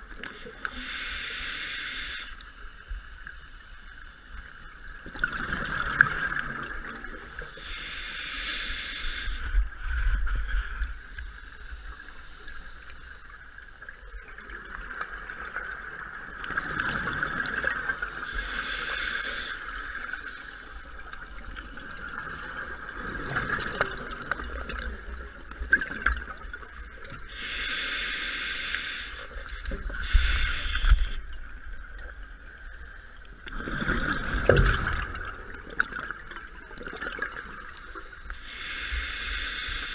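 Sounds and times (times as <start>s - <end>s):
regulator breathing hiss: 0.2s - 4.0s, 7.2s - 9.6s, 10.9s - 13.4s, 17.8s - 21.0s, 27.2s - 31.3s, 38.3s - 39.9s.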